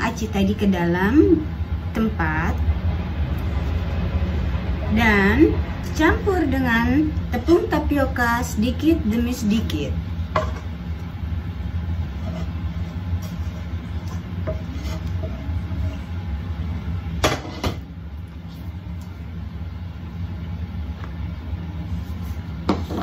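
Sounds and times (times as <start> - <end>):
steady low hum: 0.0 - 23.0
wooden spatula scraping a pan: 10.4 - 10.8, 12.0 - 16.4.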